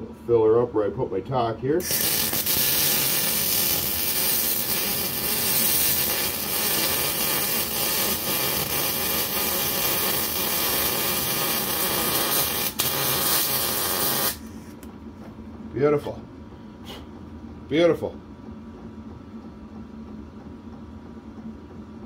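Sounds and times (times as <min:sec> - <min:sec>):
welding arc crackling hiss: 0:01.8 - 0:14.7.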